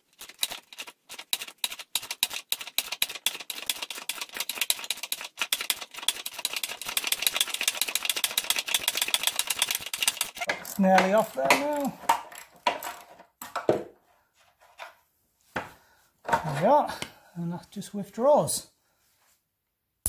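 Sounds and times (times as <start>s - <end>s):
ratchet spanner clicking: 1.4s - 10.8s.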